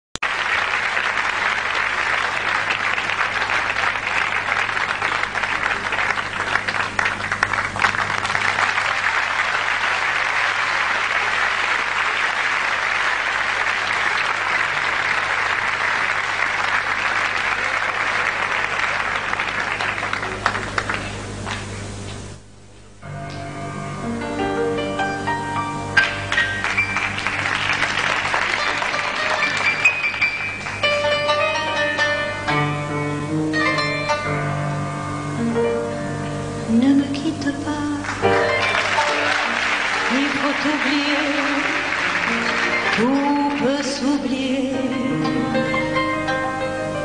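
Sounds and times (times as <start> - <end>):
audience applauding: 0.2 - 21.8, 26.0 - 32.1, 38.0 - 44.3.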